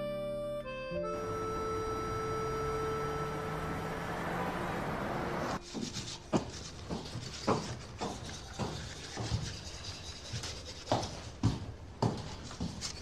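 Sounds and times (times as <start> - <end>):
music: 0.0 - 3.6
toothbrush scrubbing teeth: 5.6 - 11.0
footsteps on wooden floor: 5.7 - 13.0.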